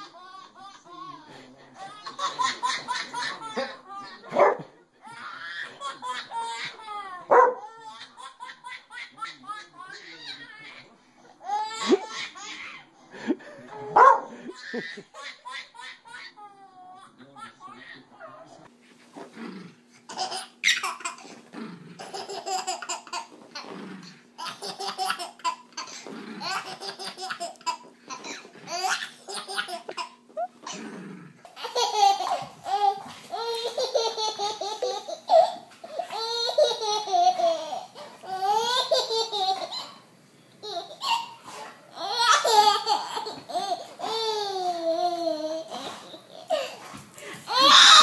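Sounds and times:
baby laughing: 1.8 - 4.4, 5.1 - 12.8, 20.1 - 21.3, 22.0 - 23.7, 24.4 - 30.8, 31.6 - 40.0, 40.6 - 46.8, 47.5 - 48.0.

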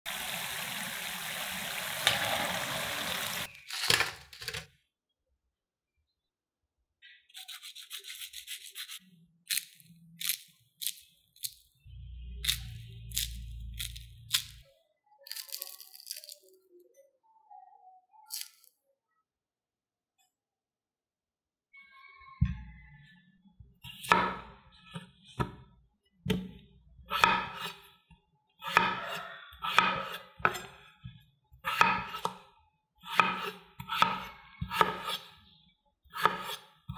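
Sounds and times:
food sizzling in frying oil: 0.1 - 3.5
fried food crackling as broken: 15.3 - 16.5.

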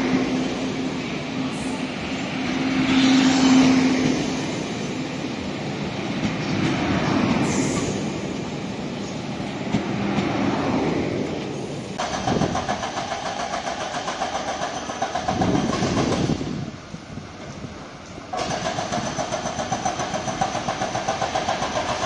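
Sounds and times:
train rumbling on rails: 0.0 - 22.0.

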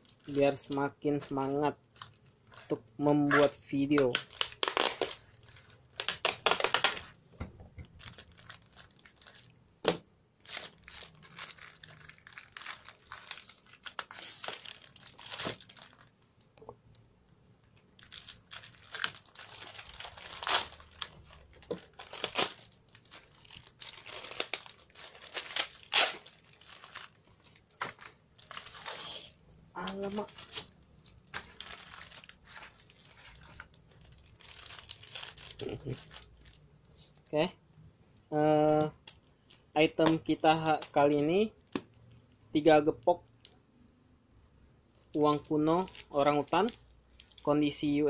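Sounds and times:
plastic and paper crinkling and tearing: 0.0 - 7.2, 7.8 - 9.6, 10.4 - 16.2, 17.6 - 37.4, 45.2 - 48.0.

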